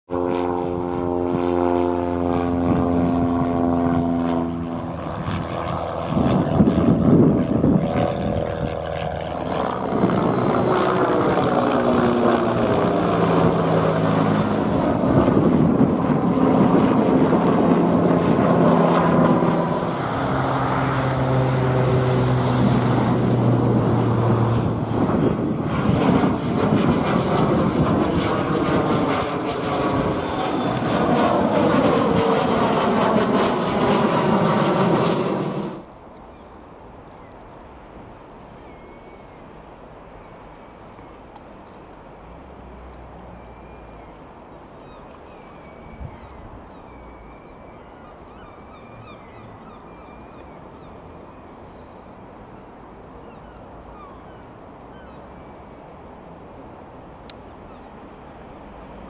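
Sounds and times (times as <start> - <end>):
jet engines whining: 0.1 - 36.0
helicopter rotor: 0.1 - 36.1
propeller plane engine: 0.1 - 59.0.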